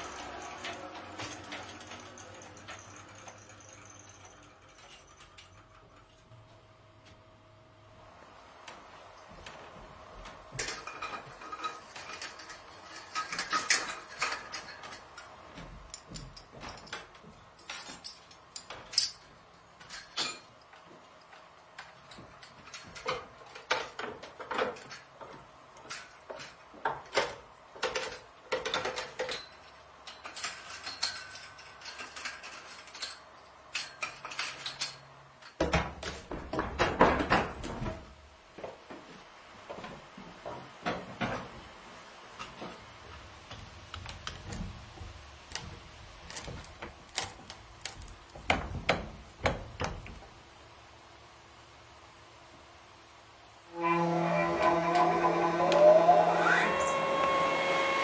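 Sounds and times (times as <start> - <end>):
knocking and rumbling: 35.6 - 39.1, 42.9 - 50.4.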